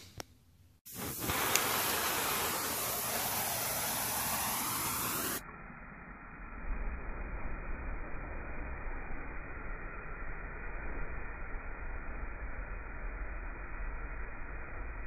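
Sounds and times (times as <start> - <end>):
compressed air hissing: 0.8 - 5.4
fireball rumble: 0.9 - 15.0.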